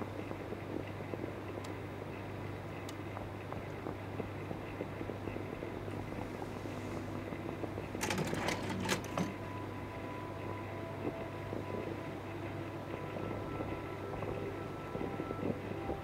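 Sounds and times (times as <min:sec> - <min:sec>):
projector fan hum: 0:00.0 - 0:16.0
projector mechanical clicks: 0:07.7 - 0:09.6.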